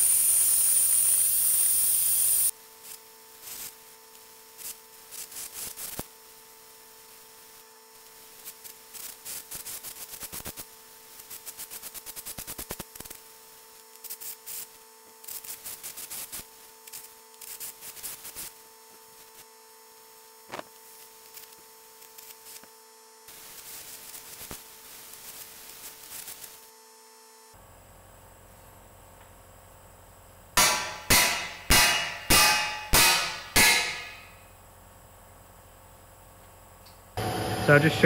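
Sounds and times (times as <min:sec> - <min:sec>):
welding arc crackling: 0:00.0 - 0:19.5, 0:20.2 - 0:26.8
steady electrical hum: 0:00.0 - 0:38.0.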